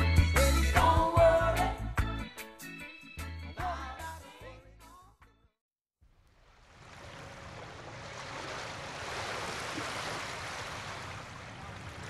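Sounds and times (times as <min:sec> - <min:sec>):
wind: 0:06.0 - 0:12.0
water at the shore: 0:06.1 - 0:12.0.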